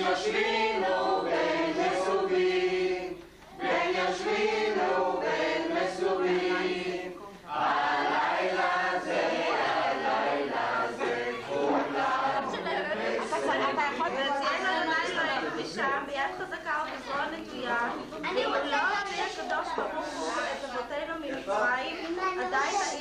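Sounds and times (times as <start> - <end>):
group of voices singing: 0.0 - 15.8.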